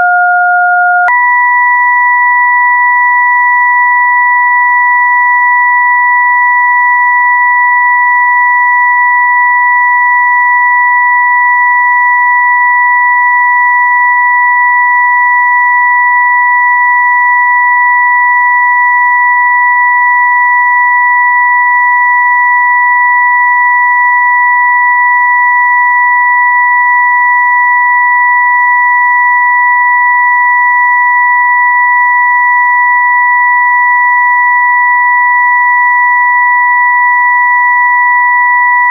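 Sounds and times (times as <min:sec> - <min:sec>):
two steady high electronic tones: 0:00.0 - 0:04.0.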